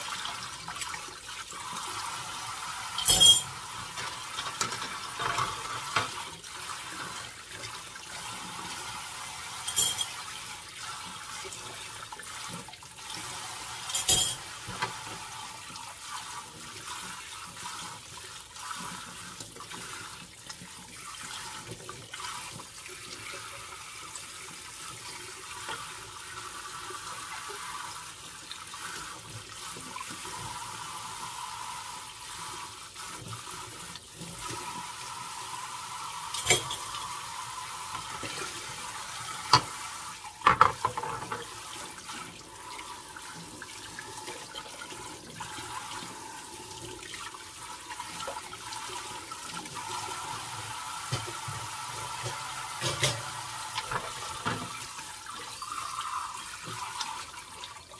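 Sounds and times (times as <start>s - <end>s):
faucet running into a bowl: 0.0s - 57.9s
dishes clinking: 3.0s - 6.2s, 9.7s - 10.2s, 13.9s - 14.5s, 36.4s - 36.9s, 40.4s - 41.5s, 52.3s - 54.7s.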